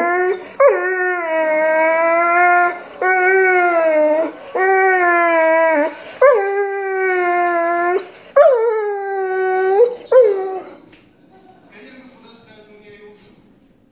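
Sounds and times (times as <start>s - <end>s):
dog howling: 0.0s - 10.9s.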